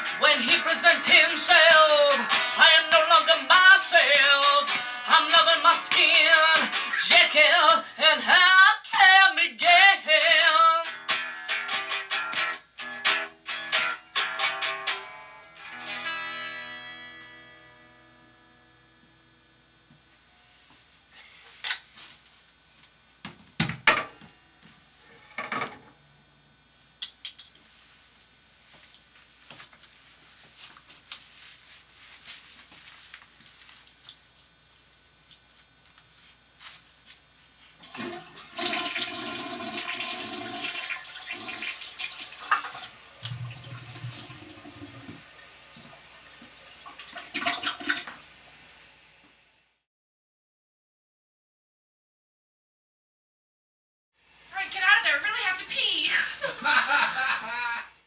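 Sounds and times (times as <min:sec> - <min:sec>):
toilet flushing: 0:37.8 - 0:48.3.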